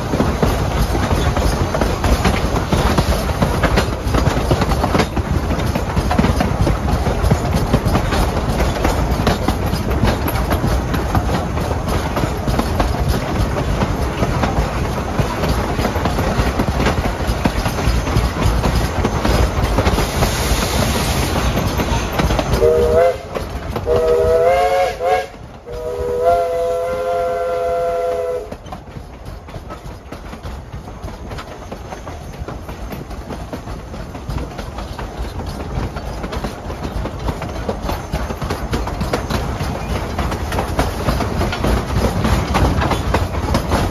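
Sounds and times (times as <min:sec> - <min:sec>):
train wheels clattering on rails: 0:00.0 - 0:43.9
steam whistle blasts: 0:22.6 - 0:28.5.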